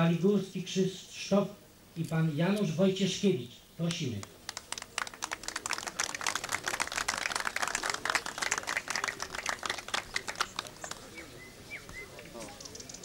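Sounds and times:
small crowd applauding: 4.2s - 11.4s.

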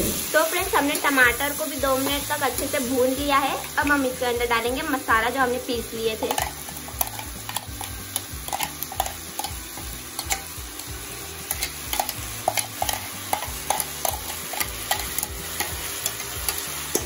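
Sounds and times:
food sizzling in oil: 0.0s - 17.0s
metal spoon clinking on bowl: 6.3s - 10.5s, 11.5s - 17.0s.

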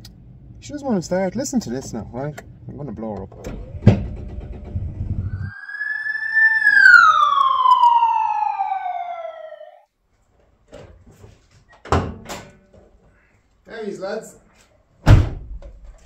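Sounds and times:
falling whistle: 5.2s - 9.8s.

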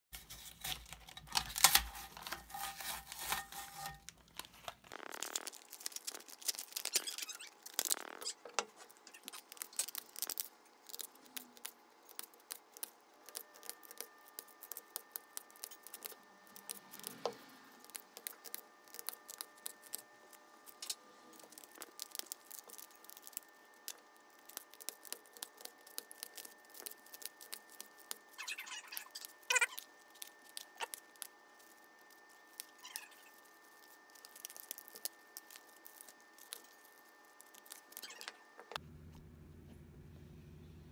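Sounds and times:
rustling and handling: 0.1s - 38.8s
scissors snipping plastic: 0.2s - 8.3s.

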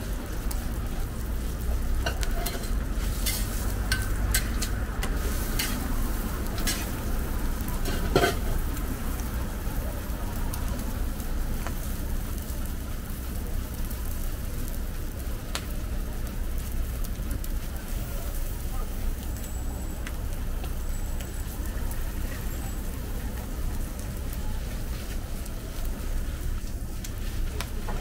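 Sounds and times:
food sizzling on a griddle: 0.0s - 28.0s
metal spatula scraping griddle: 2.0s - 7.0s, 7.8s - 8.5s.

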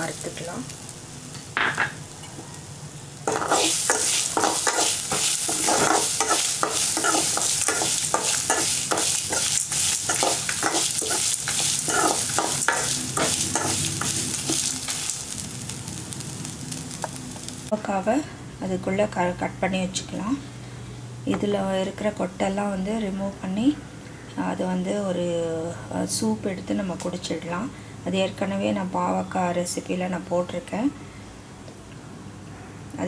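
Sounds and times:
oil sizzling: 0.0s - 18.1s
spoon scraping a steel pan: 3.3s - 14.6s.

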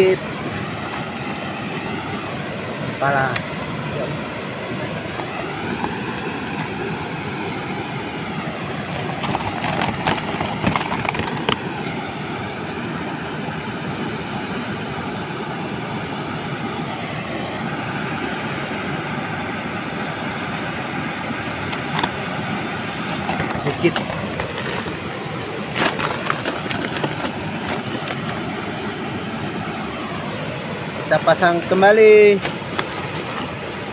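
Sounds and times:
river running over rocks: 0.0s - 33.9s
plastic bag crinkling: 23.2s - 25.1s, 25.7s - 28.4s.

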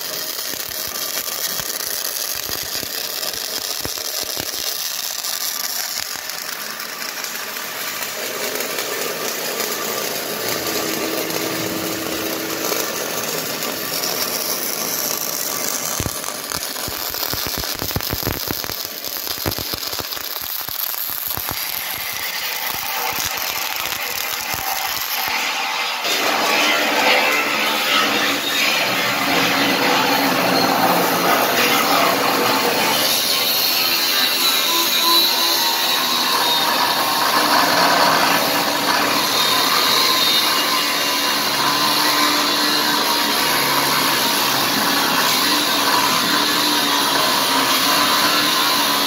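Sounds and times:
welding arc crackling sizzle: 0.0s - 49.0s.

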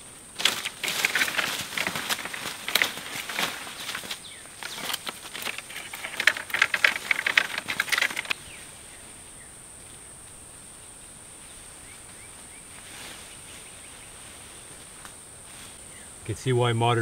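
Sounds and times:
high insect drone: 0.0s - 17.0s
plastic tarp crinkling: 0.4s - 8.4s.

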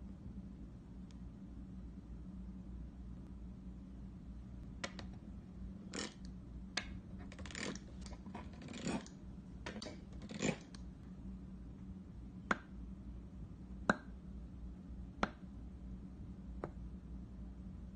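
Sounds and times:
dough cutter squishing play dough: 6.9s - 10.8s.

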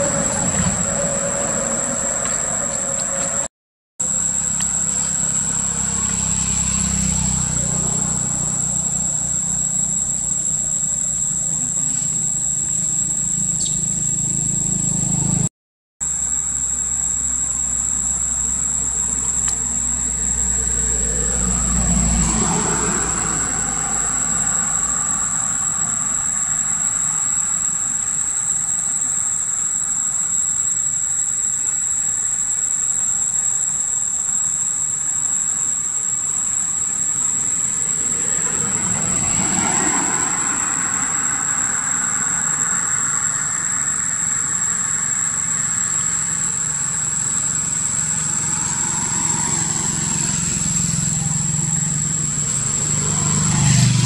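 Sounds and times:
low engine-like rumble: 0.0s - 15.5s
high whine: 0.0s - 54.0s.

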